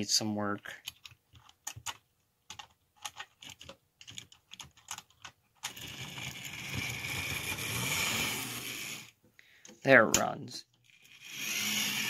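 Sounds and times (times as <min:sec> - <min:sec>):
model train motor whirring: 0:05.7 - 0:09.1, 0:10.8 - 0:12.0.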